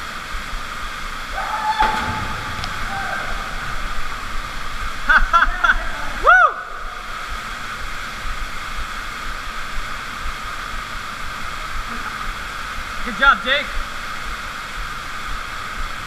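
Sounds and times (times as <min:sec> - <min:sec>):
waterfall rushing into pool: 0:00.0 - 0:16.0
person whooping: 0:01.3 - 0:02.0, 0:02.7 - 0:03.6, 0:06.2 - 0:06.8
person shouting: 0:02.8 - 0:03.4.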